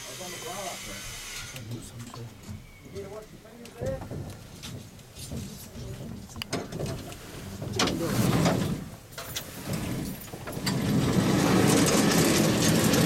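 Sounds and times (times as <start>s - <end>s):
cable car running noise: 9.6s - 13.0s.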